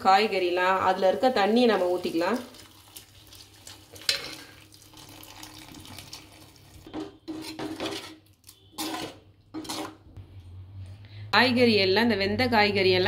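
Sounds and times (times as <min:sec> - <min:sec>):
water pouring: 0:01.1 - 0:06.9
metal ladle scraping pan: 0:04.0 - 0:04.6, 0:06.8 - 0:10.1.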